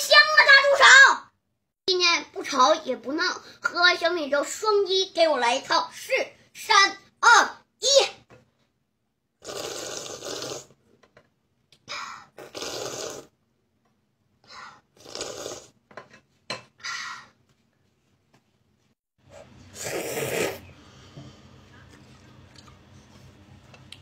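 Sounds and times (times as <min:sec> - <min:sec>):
child slurping porridge: 0:09.4 - 0:10.8, 0:12.2 - 0:13.3, 0:14.8 - 0:15.8, 0:19.2 - 0:23.4.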